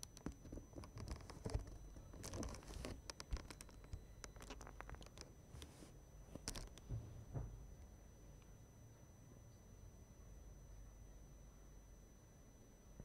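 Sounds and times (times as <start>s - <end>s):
small clicks: 0.0s - 5.7s, 6.4s - 6.9s.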